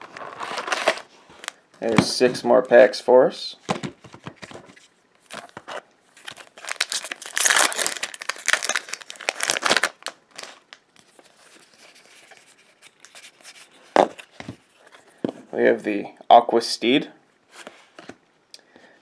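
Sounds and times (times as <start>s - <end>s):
cards rustling: 3.8s - 15.1s
foil wrapper tearing and crinkling: 6.2s - 10.8s.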